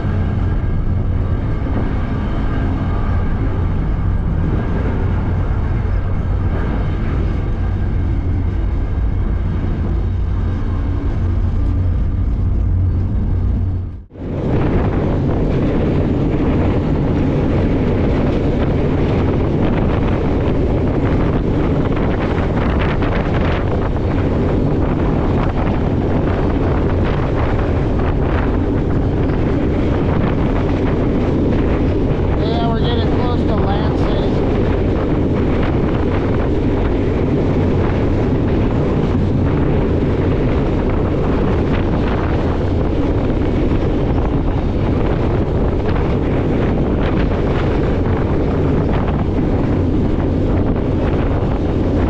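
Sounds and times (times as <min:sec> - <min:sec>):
train wheels rumbling on rail: 0:00.0 - 0:52.0
wind buffeting microphone: 0:00.0 - 0:52.0.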